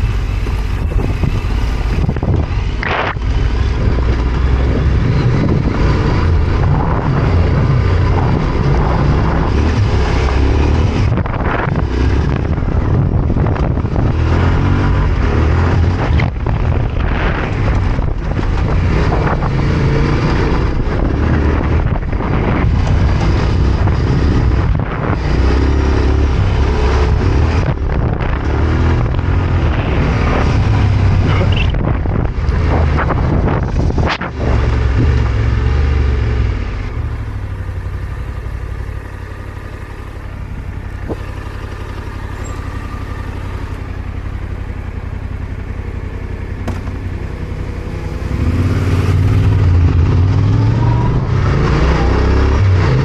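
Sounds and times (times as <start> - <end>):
motorcycle engine: 0.0 - 53.0
sharp knocks: 46.6 - 47.0.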